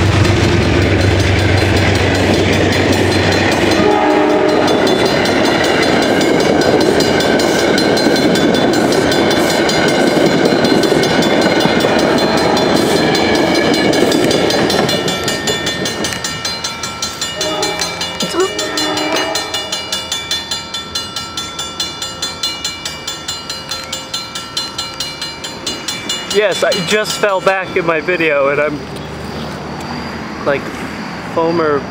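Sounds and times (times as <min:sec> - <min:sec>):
train passing at speed: 0:00.0 - 0:31.9
distant train horn: 0:03.0 - 0:05.2, 0:17.3 - 0:20.0.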